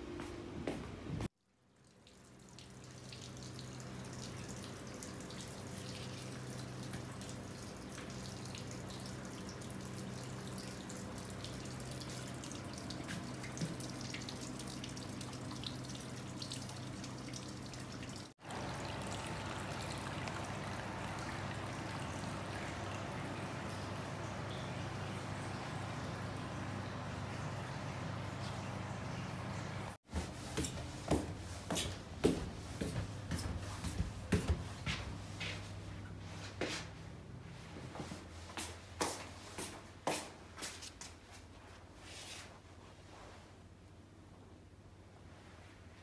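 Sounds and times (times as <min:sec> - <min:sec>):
water trickling and dripping: 0:01.6 - 0:30.0.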